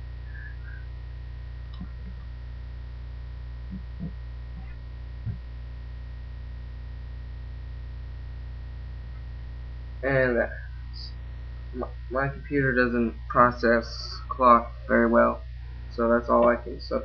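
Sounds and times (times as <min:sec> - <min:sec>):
faint constant whine: 0:00.0 - 0:17.0
low electrical hum: 0:00.0 - 0:17.0
soft low thumps: 0:01.5 - 0:05.8.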